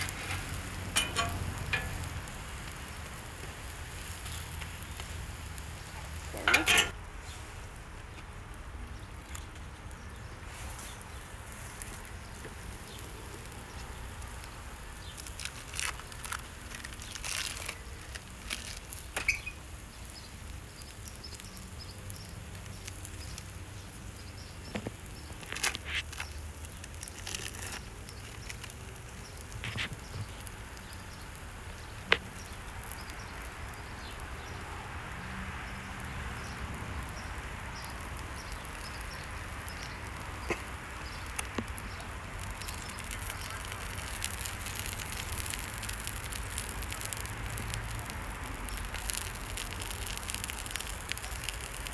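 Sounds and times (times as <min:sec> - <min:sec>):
plastic wrap being peeled: 0:10.4 - 0:34.7, 0:37.0 - 0:51.9
food packaging rustling: 0:15.0 - 0:19.5, 0:24.8 - 0:30.4.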